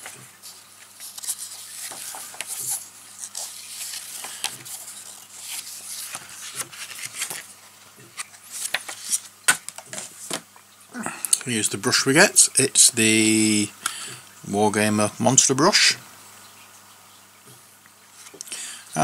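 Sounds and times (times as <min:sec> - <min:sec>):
pages flicked through by hand: 0:00.0 - 0:10.5.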